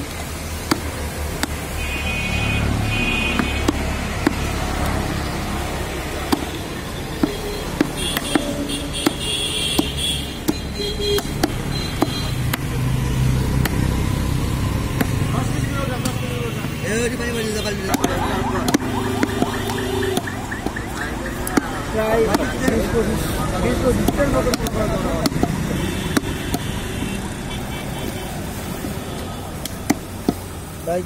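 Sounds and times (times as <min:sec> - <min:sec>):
cleaver chopping meat on wood: 0:00.0 - 0:01.7, 0:03.2 - 0:13.9, 0:14.7 - 0:15.3, 0:17.9 - 0:26.8
low traffic rumble: 0:00.0 - 0:31.0.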